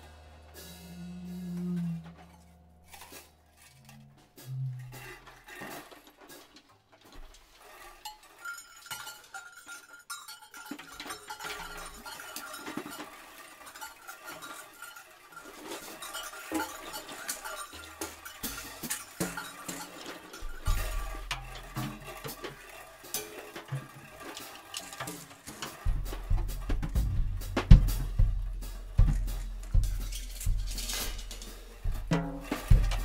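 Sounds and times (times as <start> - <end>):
metallic clinks and taps: 8.1 - 13.1.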